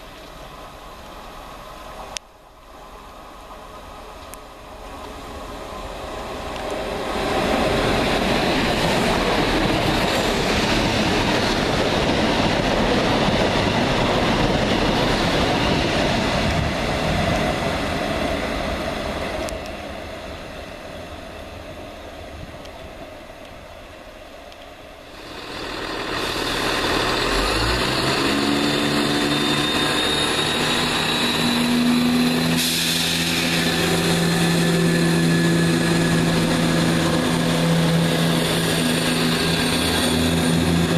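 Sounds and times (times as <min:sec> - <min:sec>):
diesel train engine: 0:00.0 - 0:40.9
train passing at speed: 0:00.0 - 0:40.9.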